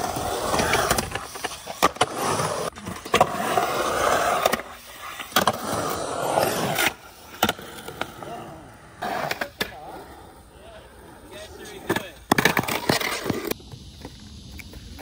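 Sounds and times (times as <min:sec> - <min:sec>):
skateboard clacks: 0:00.0 - 0:05.9, 0:11.2 - 0:13.6
skateboard wheels rolling on concrete: 0:00.0 - 0:15.0.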